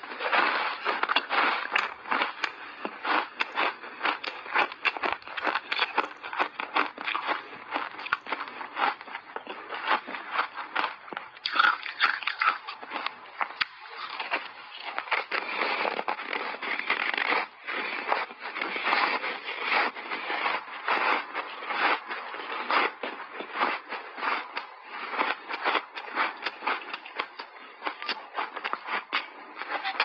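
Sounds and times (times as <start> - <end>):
crunching and chewing ice: 0.0 - 30.0.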